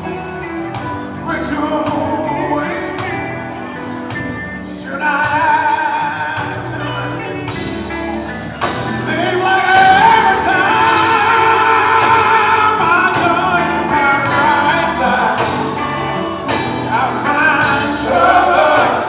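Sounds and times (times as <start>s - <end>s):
band playing: 0.0s - 19.0s
drums and cymbals: 0.0s - 19.0s
man singing gospel: 1.1s - 3.3s, 4.7s - 7.2s, 9.0s - 19.0s.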